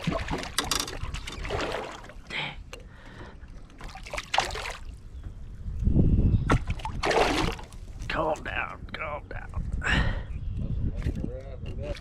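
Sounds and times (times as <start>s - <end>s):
water splashing and sloshing: 0.0s - 5.6s, 6.4s - 8.8s, 11.0s - 12.0s
fish thrashing at water surface: 6.6s - 7.7s.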